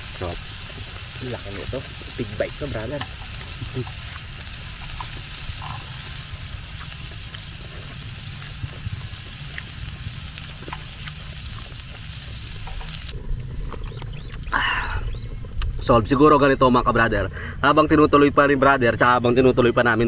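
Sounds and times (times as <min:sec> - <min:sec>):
beef sizzling on grill pan: 0:00.0 - 0:13.2.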